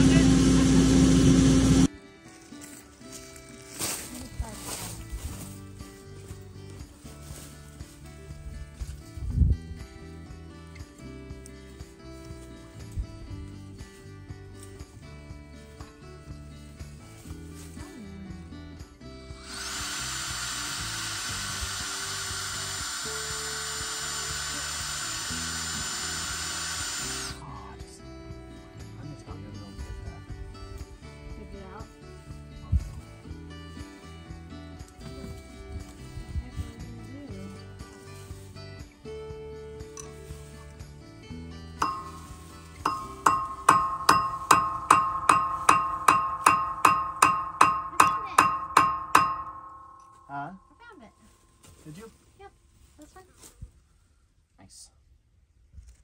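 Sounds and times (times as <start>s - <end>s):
power drill drilling into steel: 19.4s - 27.4s
hammer blows on steel: 41.8s - 50.3s.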